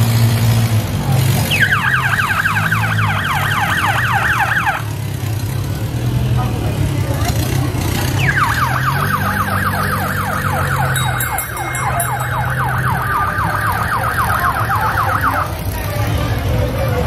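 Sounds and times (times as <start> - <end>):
vehicle engine running low: 0.0 - 17.0
siren falling sweep: 8.2 - 15.5.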